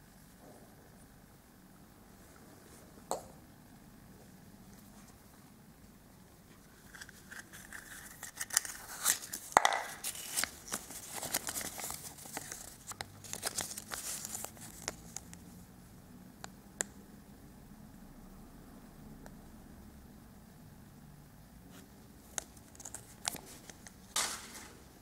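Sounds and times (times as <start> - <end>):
paper crinkling and rustling: 6.6 - 15.4, 22.4 - 24.8.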